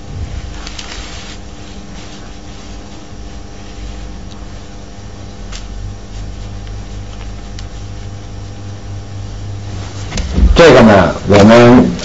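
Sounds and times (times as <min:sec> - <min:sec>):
brush rubbing on paper: 0:00.0 - 0:08.6
low hum and hiss: 0:00.0 - 0:12.0.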